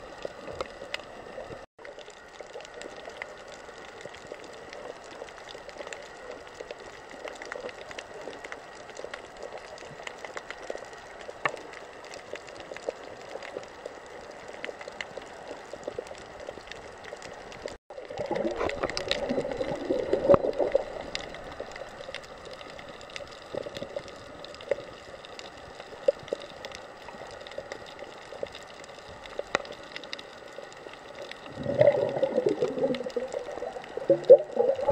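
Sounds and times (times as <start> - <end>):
muffled underwater hiss: 0.0 - 34.9
faint clicks: 0.1 - 34.9
water gurgling and rushing: 17.6 - 24.8, 31.1 - 34.9.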